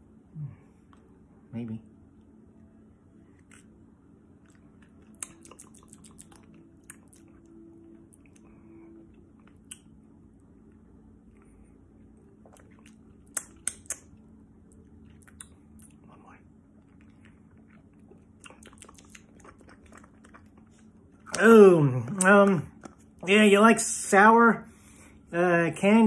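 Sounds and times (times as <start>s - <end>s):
lip smacks: 3.4s - 3.8s, 4.4s - 7.5s, 9.3s - 10.0s, 12.3s - 21.5s
tongue clicks: 5.1s - 7.3s, 9.5s - 9.9s, 12.5s - 14.1s, 15.2s - 16.0s.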